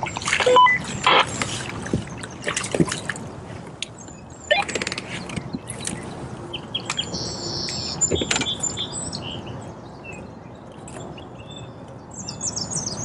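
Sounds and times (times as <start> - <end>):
steady background noise: 0.0 - 13.0
small birds chirping: 3.9 - 13.0.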